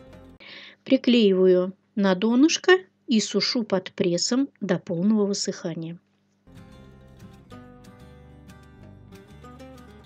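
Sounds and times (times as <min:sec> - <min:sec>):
plucked guitar-like notes: 0:06.5 - 0:10.0.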